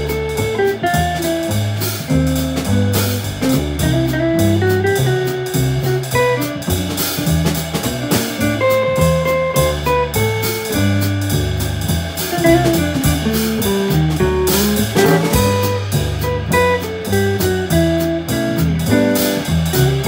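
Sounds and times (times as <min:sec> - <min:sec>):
double bass walking: 0:00.0 - 0:20.0
drums on cymbals: 0:00.0 - 0:20.0.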